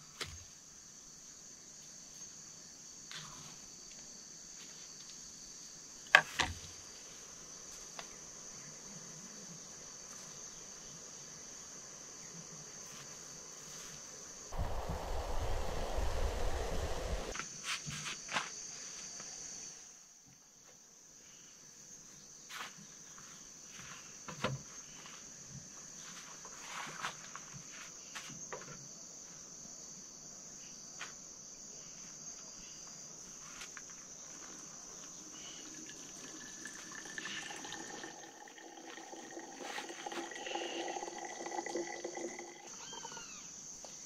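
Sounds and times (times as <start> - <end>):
forest insects chorus: 0.0 - 20.1, 21.2 - 44.0
coffee pouring into thermos: 35.0 - 43.2
ringing tone from filling flask: 35.9 - 43.3.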